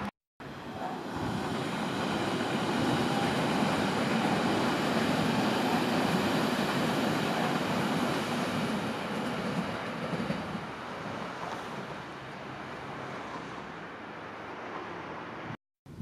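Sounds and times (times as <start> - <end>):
train wheels rumbling on rail: 0.4 - 12.6.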